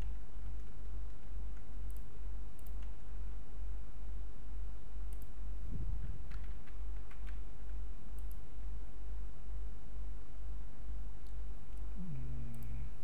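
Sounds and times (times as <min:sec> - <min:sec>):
steady low hum: 0:00.0 - 0:13.0
mouse and keyboard clicks: 0:06.2 - 0:08.4.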